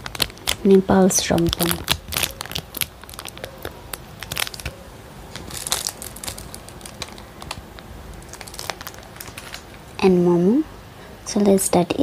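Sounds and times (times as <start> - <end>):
plastic packet crinkling: 0.0 - 10.0.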